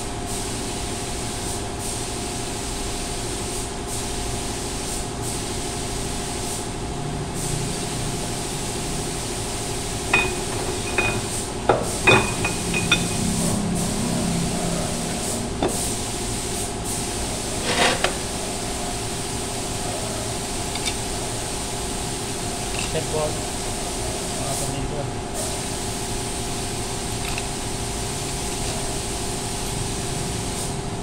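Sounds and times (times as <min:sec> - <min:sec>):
mechanical hum: 0:00.0 - 0:31.0
metal tools clinking: 0:10.1 - 0:11.3, 0:11.9 - 0:13.4.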